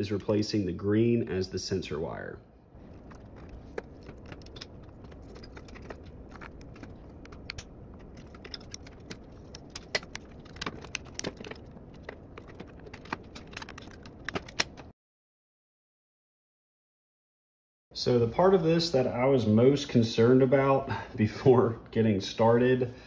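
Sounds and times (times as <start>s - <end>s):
small parts clicking and tapping: 3.0s - 14.9s
steady low hiss: 18.0s - 23.0s.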